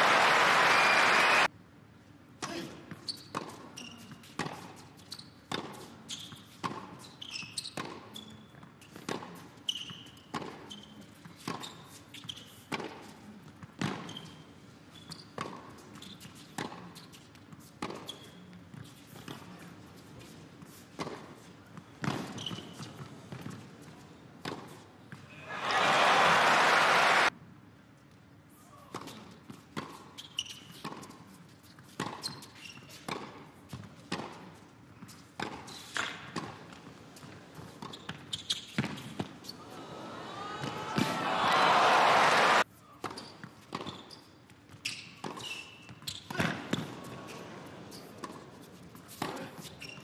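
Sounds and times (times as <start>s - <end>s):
crowd applause: 0.0s - 1.5s, 25.4s - 27.3s, 39.7s - 42.6s
sneakers squeaking on court: 2.9s - 12.8s, 13.6s - 19.4s, 20.2s - 23.6s, 29.0s - 34.3s, 37.3s - 39.6s, 43.0s - 50.0s.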